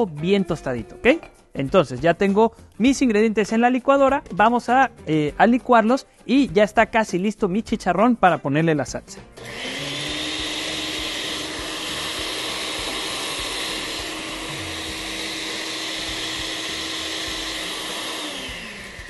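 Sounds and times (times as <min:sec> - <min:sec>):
blender running: 0:09.4 - 0:19.0.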